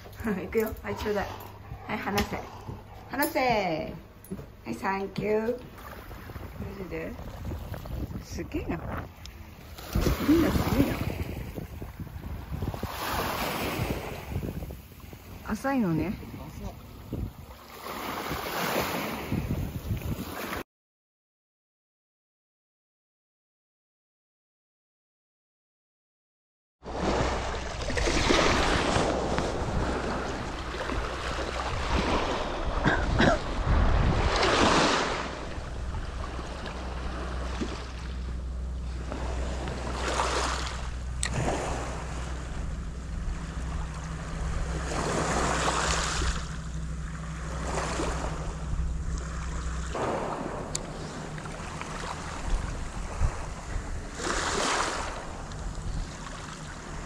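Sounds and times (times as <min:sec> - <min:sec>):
wind rumbling on microphone: 0:05.6 - 0:20.6, 0:26.9 - 0:57.0
small waves washing onto shore: 0:05.7 - 0:15.6, 0:16.4 - 0:20.6, 0:26.8 - 0:57.0.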